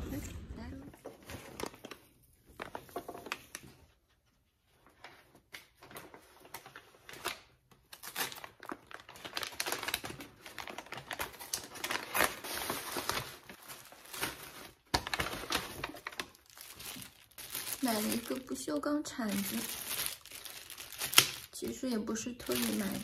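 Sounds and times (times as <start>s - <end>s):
paper bag crinkling: 5.8s - 23.0s.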